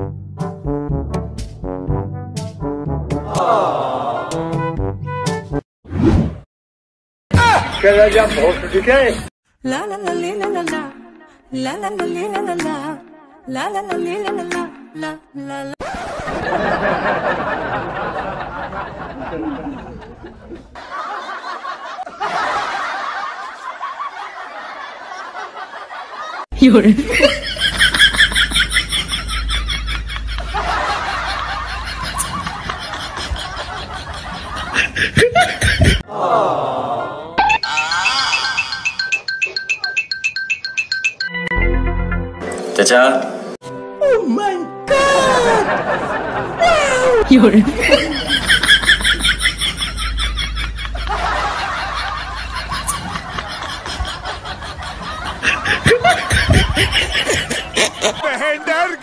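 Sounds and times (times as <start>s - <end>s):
passengers laughing: 3.3s - 4.4s, 7.4s - 9.2s, 15.8s - 39.9s, 44.9s - 59.0s.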